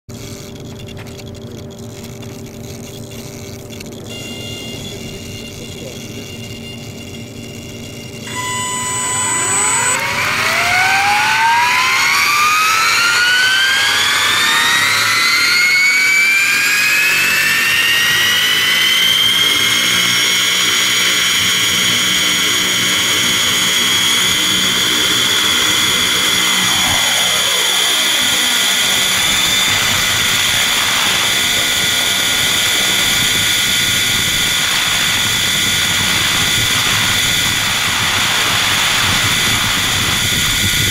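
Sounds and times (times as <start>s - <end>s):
helicopter motor and gear whine: 0.1s - 40.9s.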